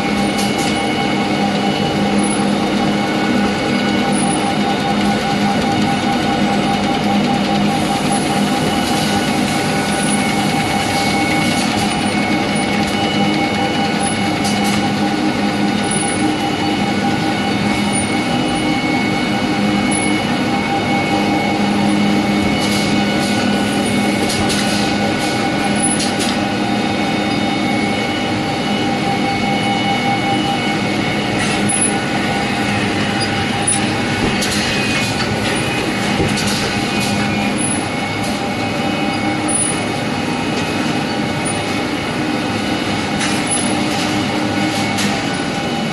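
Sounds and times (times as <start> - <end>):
machine drone with held tones: 0.0 - 45.9.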